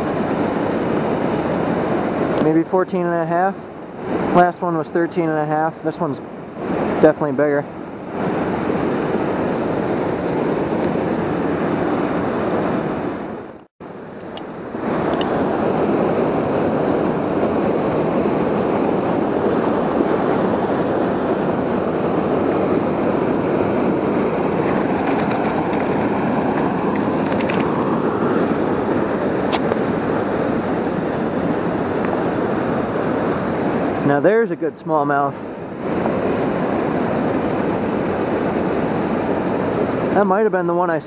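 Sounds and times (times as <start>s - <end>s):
river water pouring over dam: 22.1s - 34.0s.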